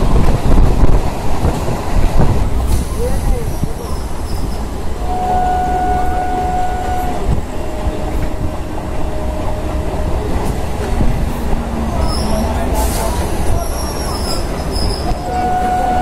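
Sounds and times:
train rumbling on rails: 0.0 - 16.0
steady tone: 7.5 - 14.1.

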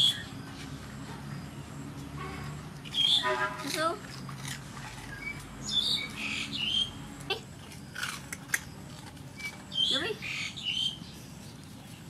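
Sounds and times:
dogs crunching pork skin: 2.7 - 6.2, 7.5 - 9.9.

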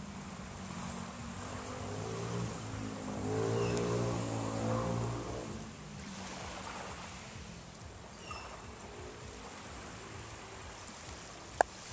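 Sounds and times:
engine humming: 0.0 - 11.9
gentle surf: 0.0 - 11.9
wind: 0.0 - 11.9.

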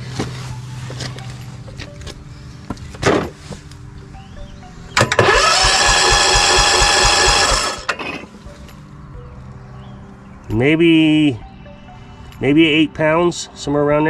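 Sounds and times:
electric starter cranking engine: 5.0 - 8.0.

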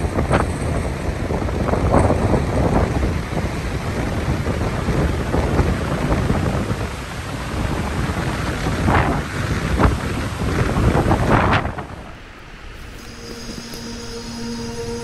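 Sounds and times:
rain: 0.0 - 15.0
wind rumbling over microphone: 0.0 - 15.0.

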